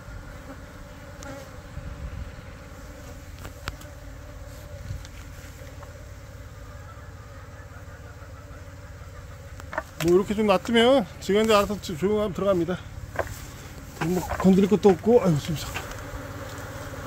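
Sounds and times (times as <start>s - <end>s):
bees buzzing: 0.0s - 17.0s.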